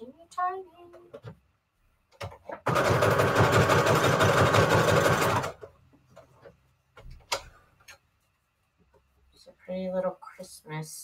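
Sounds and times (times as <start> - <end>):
sewing machine stitching: 2.6 - 5.7.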